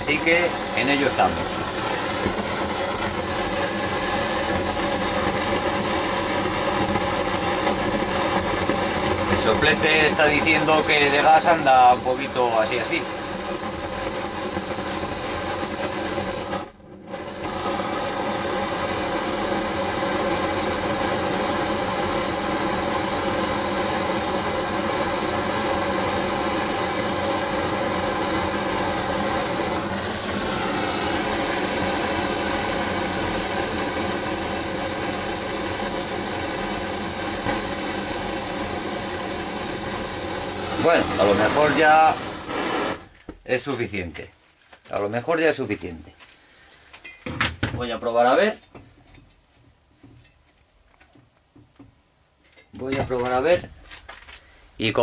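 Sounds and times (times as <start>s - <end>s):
blowtorch flame roaring hiss: 0.0s - 43.2s.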